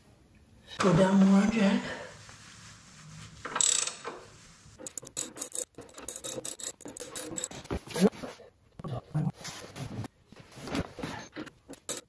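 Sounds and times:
metal scrape: 2.6s - 8.1s
rapid metallic clicks: 4.8s - 7.6s.

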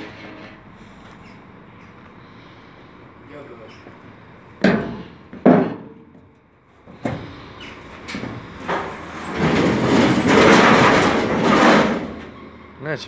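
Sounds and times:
metal gate grating and scraping: 0.0s - 1.4s, 7.0s - 12.8s
footsteps on metal ramp: 4.6s - 12.2s.

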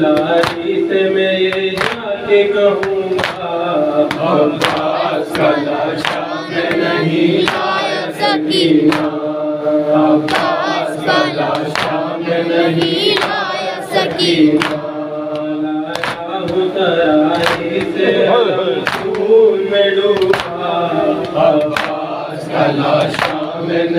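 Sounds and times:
men chanting over microphone: 0.0s - 23.9s
hand slaps on chest: 2.8s - 3.4s, 8.9s - 9.1s, 15.4s - 16.2s, 18.8s - 19.3s, 20.2s - 20.6s, 21.2s - 22.0s, 23.0s - 23.5s.

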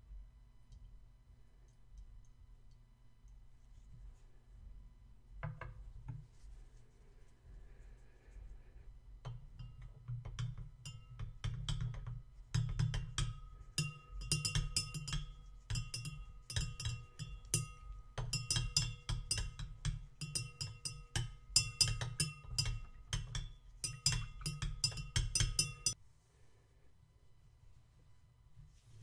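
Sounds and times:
glass rod clinking in beaker: 9.3s - 26.0s.

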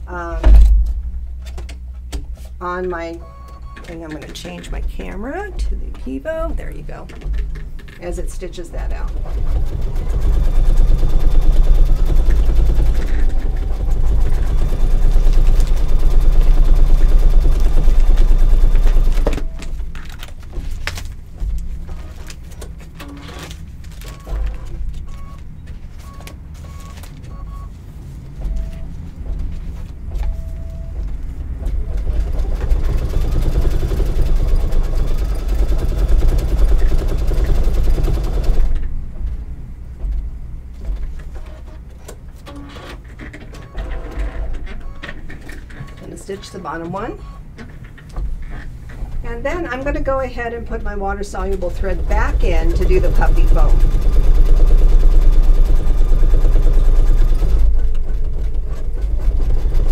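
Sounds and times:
embroidery machine stitching: 8.8s - 19.8s, 31.8s - 38.8s, 51.4s - 59.9s.

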